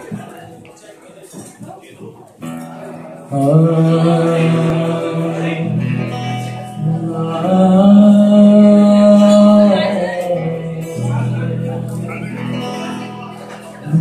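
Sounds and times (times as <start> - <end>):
acoustic guitar: 0.0 - 14.0
man singing long notes: 3.2 - 14.0.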